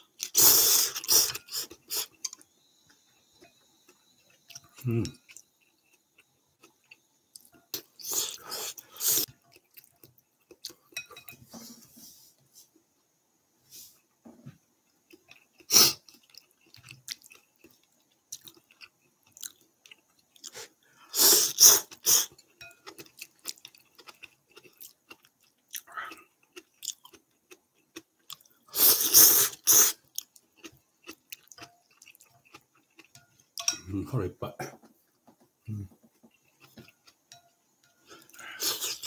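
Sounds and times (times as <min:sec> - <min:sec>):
chewing: 0:00.1 - 0:11.4, 0:14.9 - 0:33.8, 0:35.1 - 0:39.0
noodle slurping: 0:00.2 - 0:02.3, 0:28.7 - 0:30.1.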